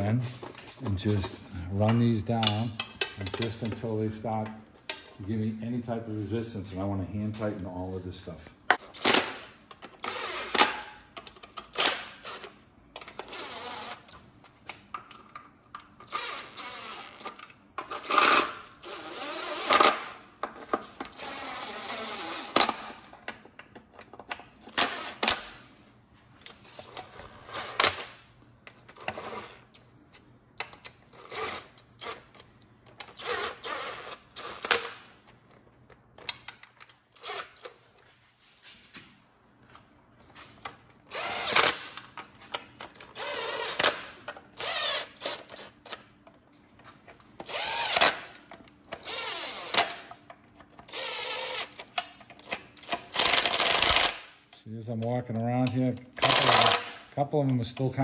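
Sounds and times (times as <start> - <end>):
cordless driver spinning bolts: 9.9 - 10.7, 11.6 - 14.2, 16.0 - 20.1, 28.9 - 29.8, 31.1 - 32.4, 33.0 - 35.0, 37.2 - 37.8, 41.0 - 42.0, 42.9 - 46.0, 47.4 - 50.1, 50.8 - 54.2, 56.2 - 56.9.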